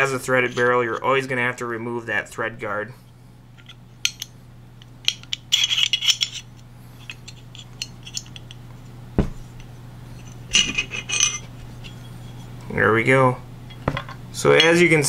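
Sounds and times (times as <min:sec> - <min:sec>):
metal pistol parts clicking: 0:03.6 - 0:04.3, 0:05.0 - 0:06.5.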